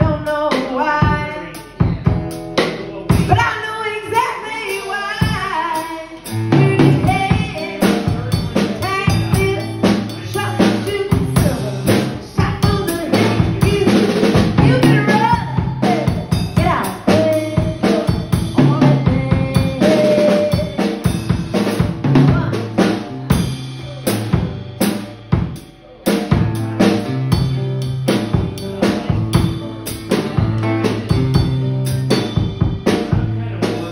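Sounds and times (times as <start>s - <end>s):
drum kit beat: 0.0s - 33.9s.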